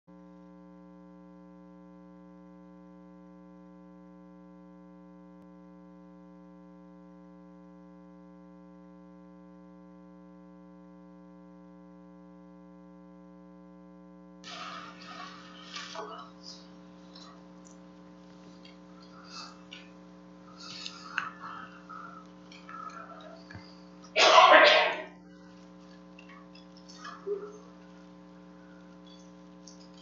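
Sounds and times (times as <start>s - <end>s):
electrical mains hum: 14.4s - 30.0s.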